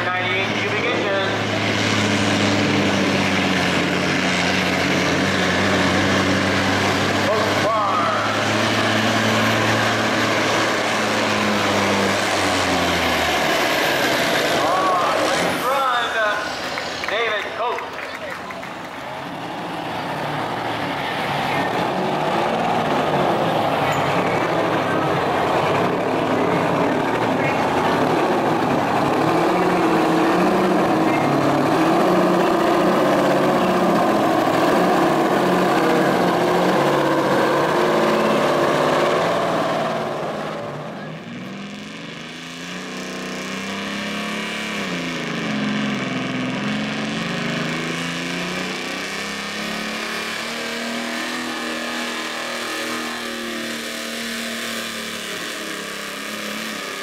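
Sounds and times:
diesel truck engine running hard: 0.0 - 57.0.

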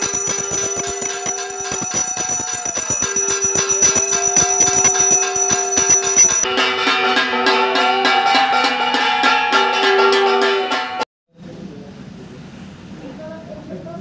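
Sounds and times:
bell rung rapidly: 0.0 - 10.4.

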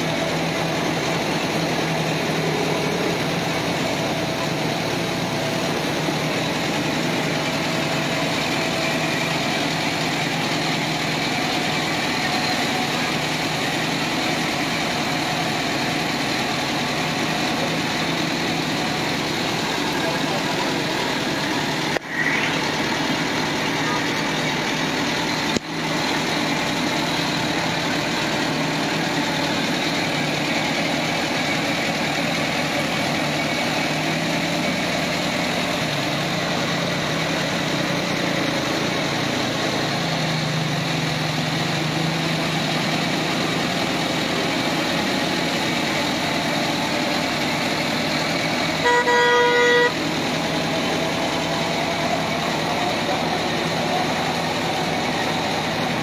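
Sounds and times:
tractor diesel engine running: 0.0 - 56.0
vehicle horn: 48.7 - 50.2.

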